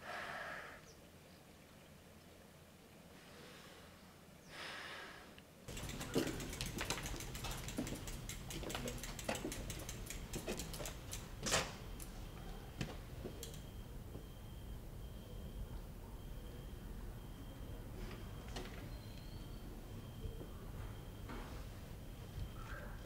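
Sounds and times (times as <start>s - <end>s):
soft breath: 3.2s - 5.4s
footsteps: 5.7s - 11.8s
bicycle freewheel ticking: 5.7s - 13.7s.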